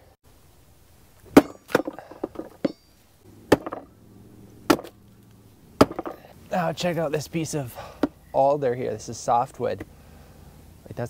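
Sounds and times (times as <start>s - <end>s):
hatchet chopping log: 1.3s - 2.9s, 3.5s - 4.0s, 4.6s - 5.0s, 5.8s - 6.3s, 8.0s - 8.2s.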